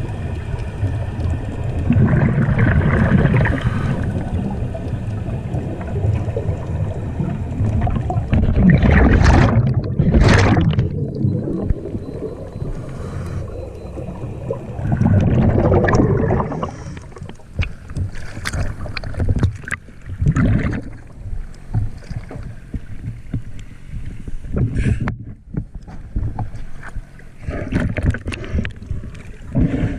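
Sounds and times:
water splashes and clicks: 0.0s - 12.6s, 13.7s - 29.7s
regulator bubbles rushing: 0.0s - 17.7s, 18.5s - 21.3s
low underwater rumble: 0.0s - 29.9s.

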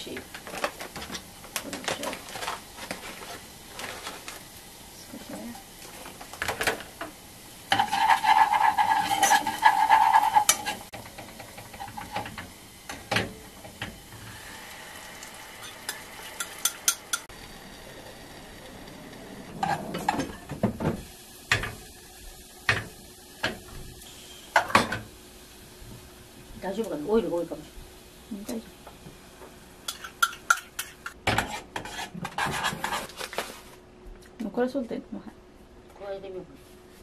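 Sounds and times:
food sizzling in saucepan: 0.0s - 33.0s
spoon scraping a pan: 7.7s - 12.4s, 29.9s - 33.2s.

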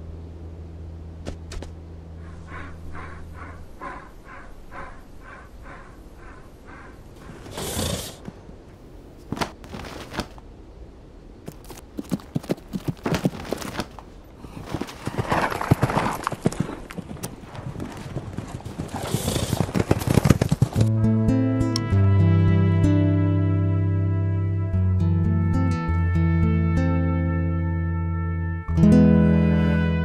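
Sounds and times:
bull snorting: 2.2s - 8.4s, 14.4s - 20.8s
hooves clopping: 11.5s - 20.9s.

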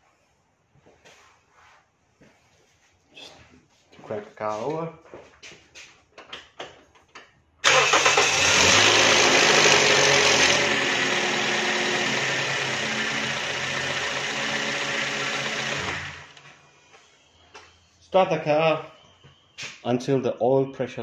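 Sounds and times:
car engine running: 7.8s - 16.2s.

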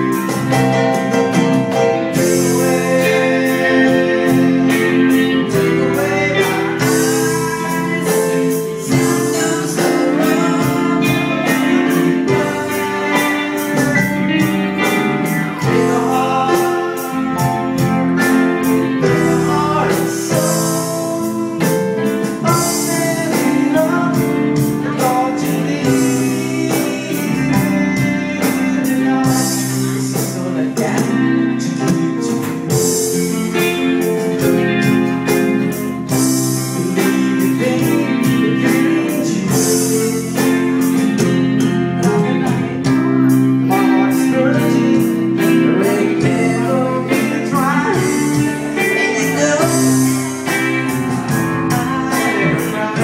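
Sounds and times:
electronic keyboard chords: 0.0s - 53.0s
man singing into a microphone: 0.0s - 53.0s
steady drum beat: 0.0s - 53.0s.

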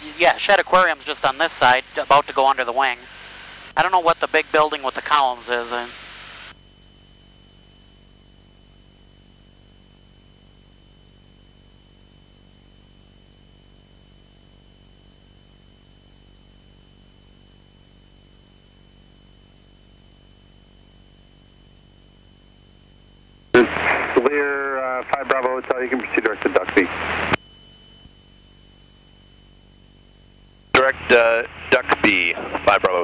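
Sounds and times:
audio feed hiss: 0.0s - 6.6s, 23.6s - 27.4s, 30.7s - 33.0s
aircraft engine drone: 0.0s - 7.3s, 23.6s - 33.0s
thin high whine: 0.0s - 33.0s.

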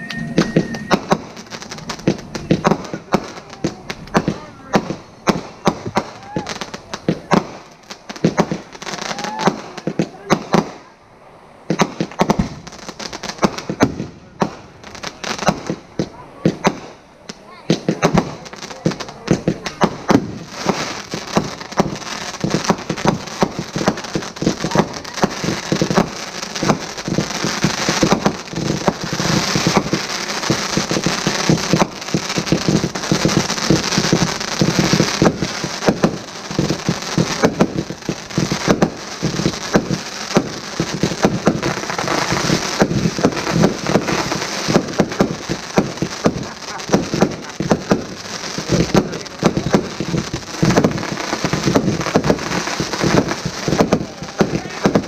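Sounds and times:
fireworks popping and crackling: 0.0s - 55.0s.

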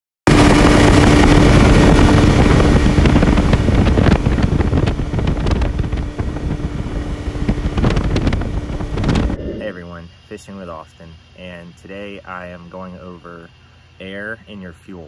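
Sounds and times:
outboard motor running: 0.3s - 9.6s
wind on microphone: 0.3s - 9.8s.

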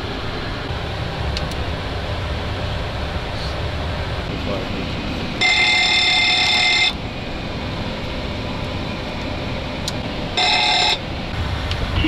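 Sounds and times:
cockpit fans humming: 0.0s - 12.0s
fire warning bell ringing: 5.4s - 7.0s, 10.3s - 11.1s.

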